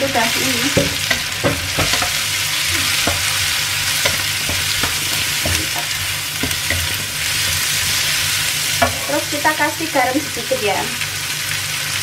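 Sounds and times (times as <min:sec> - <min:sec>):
food sizzling in hot oil: 0:00.0 - 0:12.0
wooden spatula scraping wok: 0:00.3 - 0:09.4.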